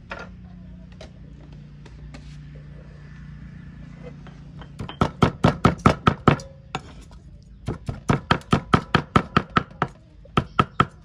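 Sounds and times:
cleaver chopping on wooden block: 7.7s - 11.0s.

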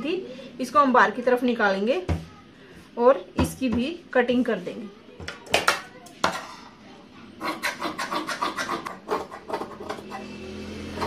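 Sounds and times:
shears cutting fabric: 7.4s - 11.0s.

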